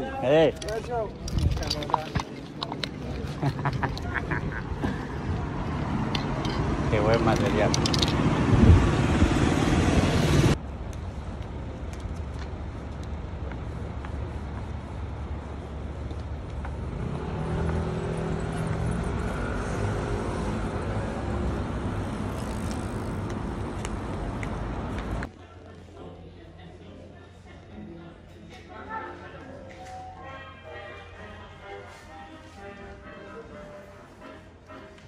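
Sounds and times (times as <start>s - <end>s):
street traffic: 0.0s - 35.0s
vehicle engine: 0.3s - 25.3s
cars passing close by: 2.6s - 10.6s, 16.4s - 25.3s.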